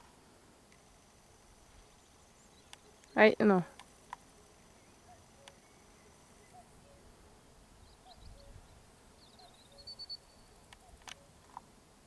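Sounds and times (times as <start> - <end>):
faint high bird chirps: 4.5 - 7.1, 7.8 - 11.4.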